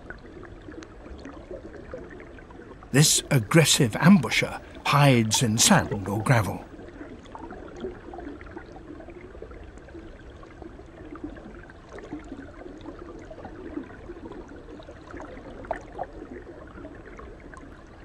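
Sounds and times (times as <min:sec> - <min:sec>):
water gurgling: 0:02.9 - 0:06.6.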